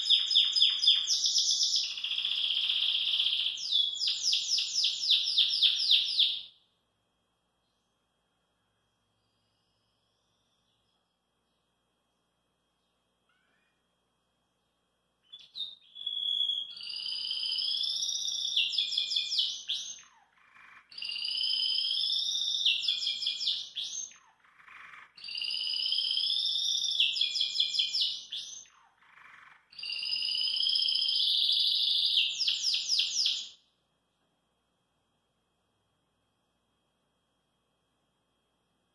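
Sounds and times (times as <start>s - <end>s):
canary singing: 0.0s - 6.6s, 15.2s - 33.6s.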